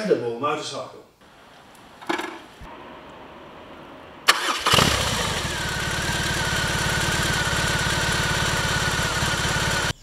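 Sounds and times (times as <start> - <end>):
motorcycle engine cranking and idling: 4.3 - 10.0.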